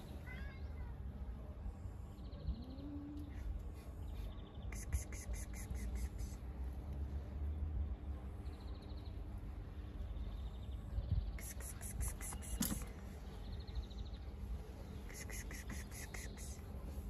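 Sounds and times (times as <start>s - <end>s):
rapid high chirping: 15.1s - 16.6s.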